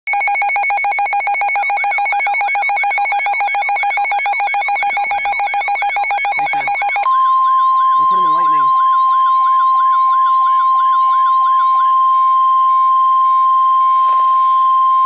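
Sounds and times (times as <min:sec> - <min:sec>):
fast pulsing two-tone beep: 0:00.1 - 0:11.9
steady warning alarm tone: 0:00.1 - 0:15.0.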